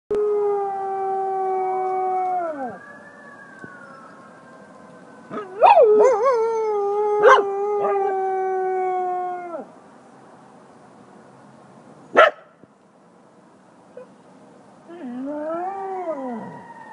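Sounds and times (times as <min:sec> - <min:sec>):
siren: 0:01.4 - 0:07.9, 0:16.0 - 0:16.9
dog howling: 0:05.3 - 0:09.6.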